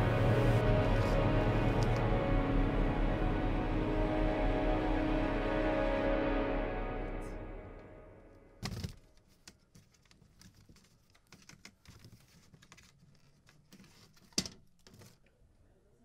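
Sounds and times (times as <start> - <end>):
objects clicking and rustling: 8.6 - 15.3.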